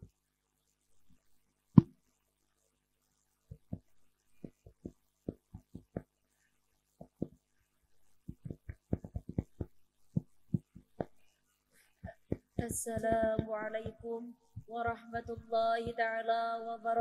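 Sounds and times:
faint electrical hum: 0:00.0 - 0:17.0
microphone handling thumps: 0:12.0 - 0:14.0.

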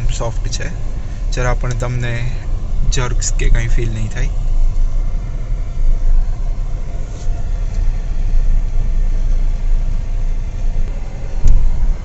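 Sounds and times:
car engine and road noise: 0:00.0 - 0:12.0
thump: 0:11.4 - 0:11.8.

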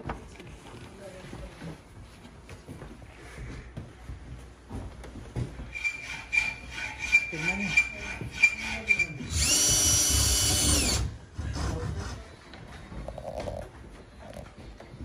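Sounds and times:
cordless drill whining: 0:08.4 - 0:11.1.

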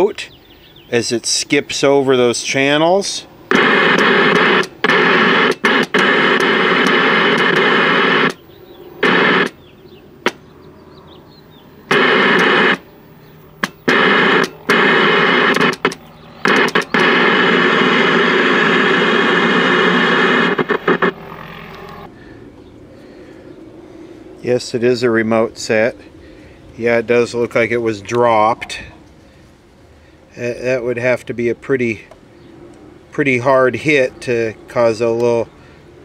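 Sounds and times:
television static hiss: 0:02.7 - 0:09.6, 0:11.8 - 0:22.1
channel selector clicks: 0:13.6 - 0:17.2, 0:20.6 - 0:22.1.

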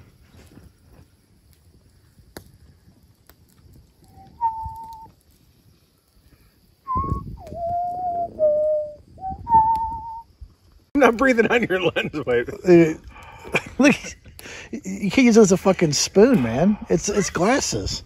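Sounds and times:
person whistling a tune: 0:04.2 - 0:05.1, 0:06.9 - 0:10.3.

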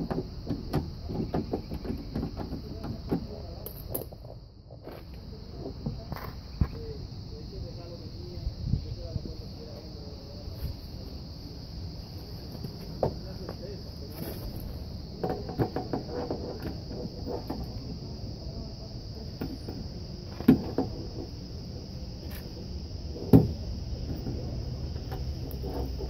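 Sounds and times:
plastic and sheet metal rattling: 0:00.0 - 0:03.8
insect chirring: 0:00.0 - 0:26.0.

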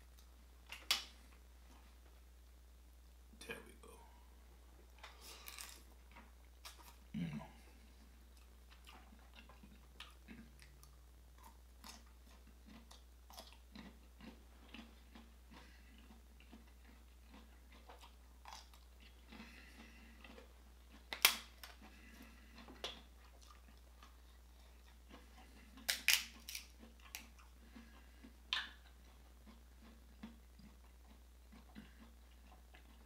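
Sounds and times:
soft chewing with mouth clicks: 0:00.0 - 0:03.2, 0:03.8 - 0:33.0
crab shell cracking: 0:21.1 - 0:21.8, 0:25.8 - 0:27.3.

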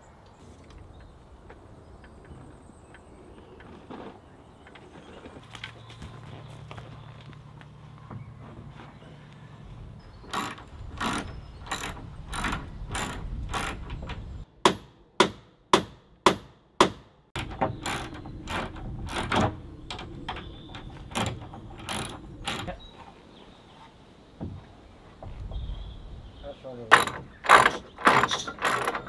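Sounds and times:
irregular knocks: 0:10.2 - 0:22.8, 0:26.9 - 0:29.0
sharp blows on wood: 0:14.6 - 0:19.5.

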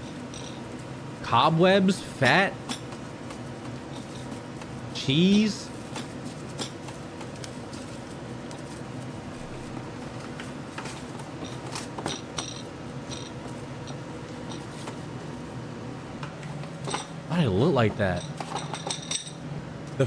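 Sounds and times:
utensils clicking and clinking: 0:10.7 - 0:14.8
kitchen background noise: 0:16.2 - 0:20.0.

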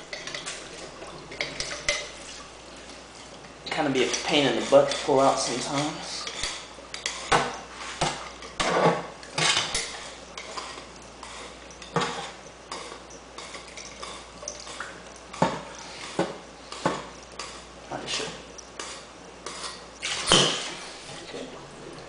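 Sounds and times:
running tap hiss: 0:00.0 - 0:22.0.

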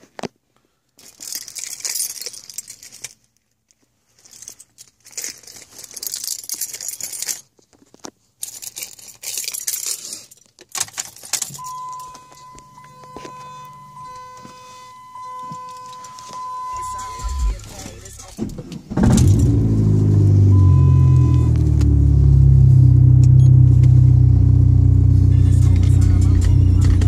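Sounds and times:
keys jangling: 0:01.0 - 0:07.6, 0:08.4 - 0:18.4
steady electronic tone: 0:11.6 - 0:17.7, 0:20.4 - 0:21.6.

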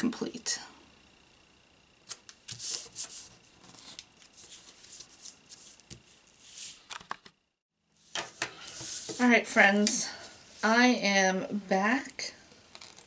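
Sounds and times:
paper rustling and crinkling: 0:02.1 - 0:07.2.

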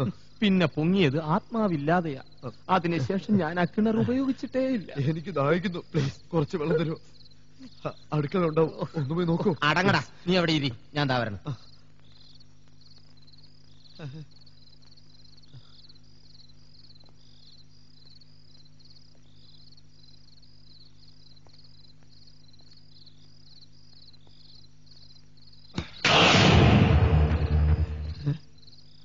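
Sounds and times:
crickets chirping: 0:00.0 - 0:29.0
low hum: 0:25.8 - 0:28.5
crash and rumble sound effect: 0:26.0 - 0:28.4.

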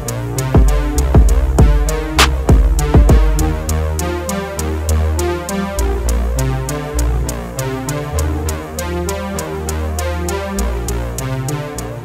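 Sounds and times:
electronic music: 0:00.0 - 0:12.0.

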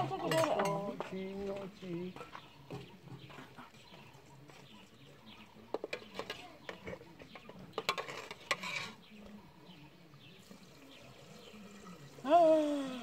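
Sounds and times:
scraping: 0:05.8 - 0:09.0.

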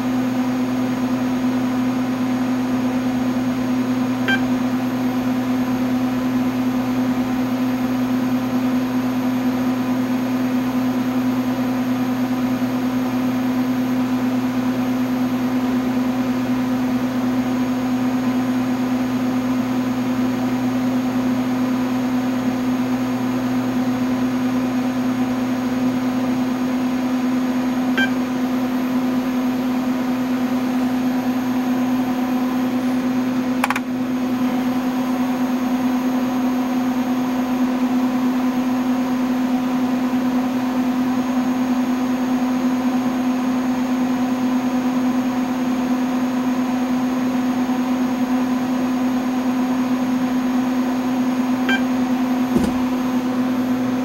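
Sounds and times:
computer fans humming: 0:03.1 - 0:07.3, 0:27.6 - 0:36.3
brief click: 0:33.6 - 0:33.9.

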